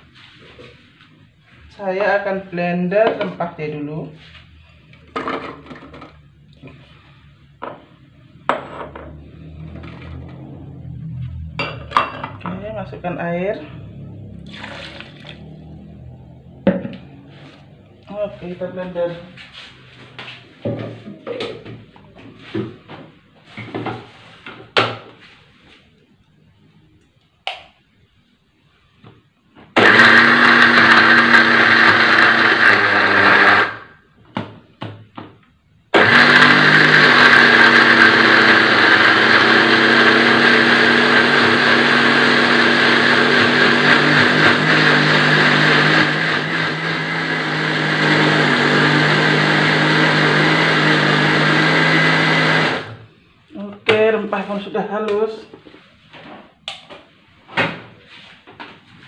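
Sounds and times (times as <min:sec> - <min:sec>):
blender grinding: 0:09.2 - 0:10.8, 0:14.2 - 0:16.0, 0:29.8 - 0:34.0, 0:35.9 - 0:53.1.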